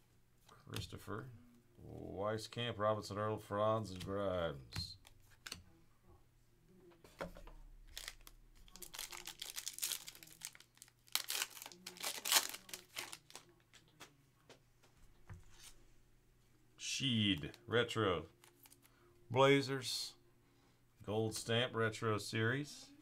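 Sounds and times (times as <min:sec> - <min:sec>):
foil wrapper tearing and crinkling: 0:07.9 - 0:13.5.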